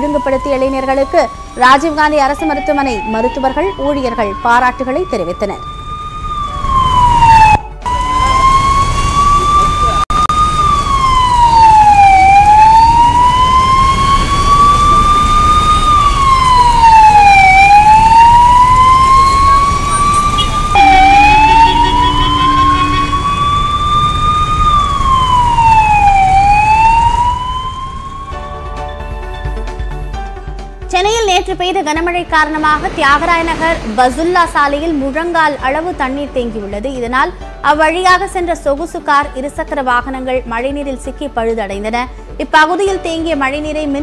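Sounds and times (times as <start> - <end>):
ambulance siren wailing: 0.0 - 30.0
low rumble of traffic: 2.8 - 28.3.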